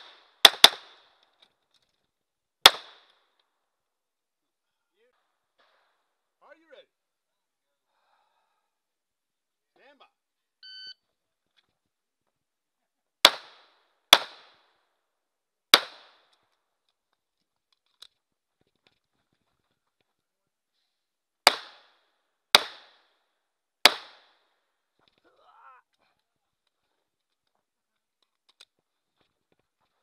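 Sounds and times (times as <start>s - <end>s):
pistol shots: 0.0s - 1.2s, 2.6s - 3.3s, 13.2s - 14.7s, 15.7s - 16.4s, 21.4s - 23.2s, 23.8s - 24.4s
electronic start beep: 10.6s - 11.0s.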